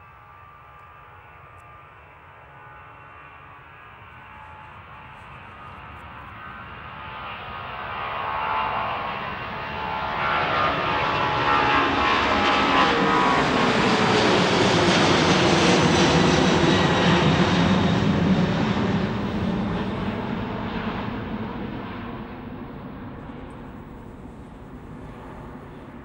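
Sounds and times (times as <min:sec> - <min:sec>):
jet aircraft passing overhead: 0:00.0 - 0:26.0.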